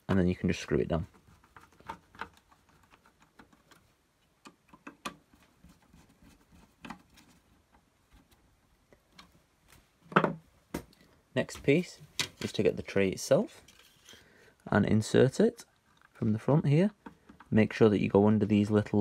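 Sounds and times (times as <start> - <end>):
tools and parts handled: 1.0 - 8.5, 12.0 - 12.6, 13.6 - 14.3.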